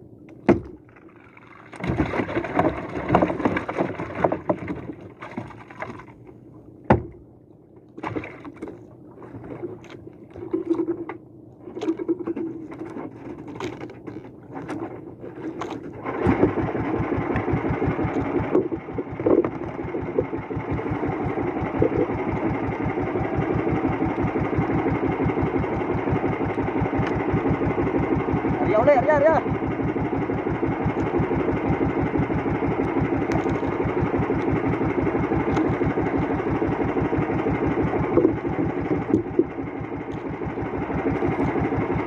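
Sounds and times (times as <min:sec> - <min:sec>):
small boat engine running: 0:00.0 - 0:42.0
sharp engine knocks: 0:00.4 - 0:00.8, 0:06.9 - 0:07.2, 0:16.2 - 0:22.2.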